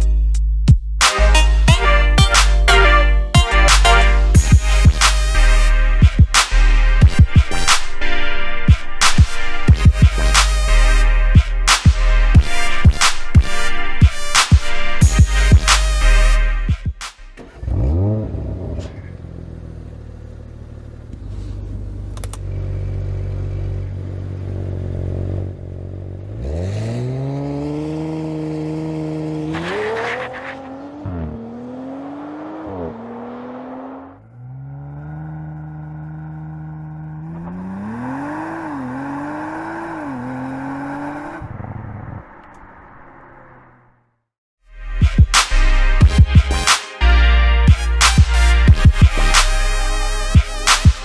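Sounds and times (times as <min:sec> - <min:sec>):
car engine revving and accelerating: 0:17.4 - 0:44.0.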